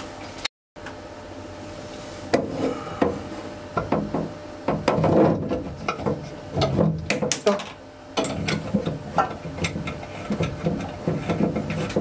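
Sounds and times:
metal clunking and scraping on tank: 2.3s - 7.6s, 8.2s - 12.0s.

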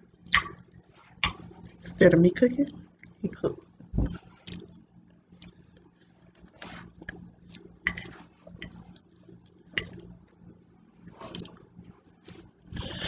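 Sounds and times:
chewing and wet mouth sounds: 4.4s - 10.4s, 11.0s - 11.9s.

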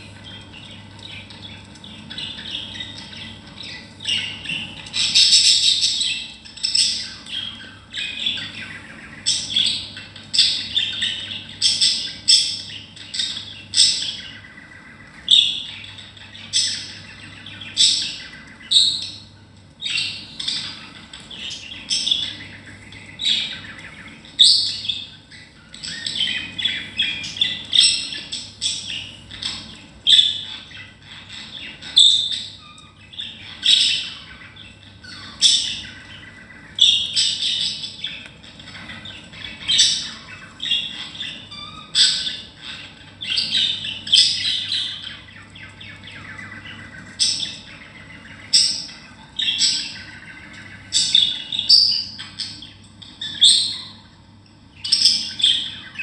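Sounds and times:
budgerigars chirping and squawking: 0.0s - 56.0s.

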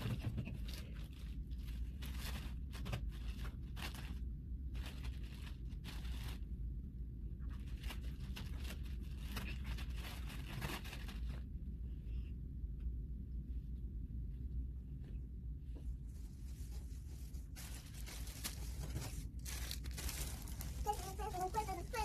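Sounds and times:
packaging rustling and ripping: 0.0s - 6.5s, 7.4s - 11.5s, 17.2s - 22.0s.

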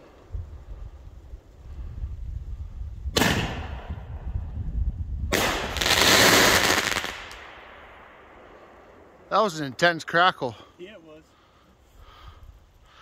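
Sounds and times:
firework bang: 3.1s - 4.1s, 5.3s - 8.2s
firework crackling: 5.3s - 8.6s.

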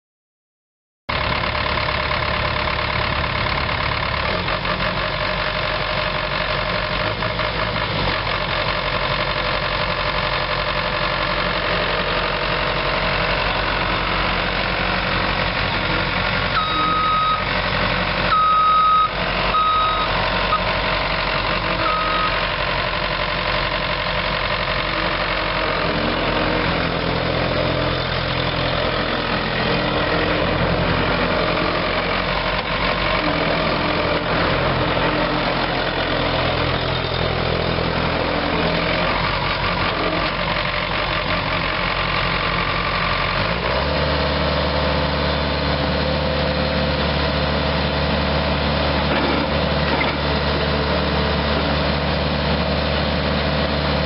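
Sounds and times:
diesel engine running: 1.1s - 54.0s
backup alarm beeping: 16.6s - 17.5s, 18.3s - 20.1s.

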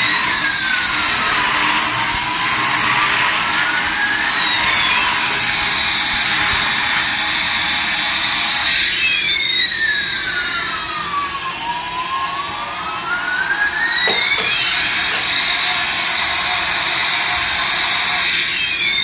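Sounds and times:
toy electronic jet-engine whoosh: 0.0s - 10.8s.

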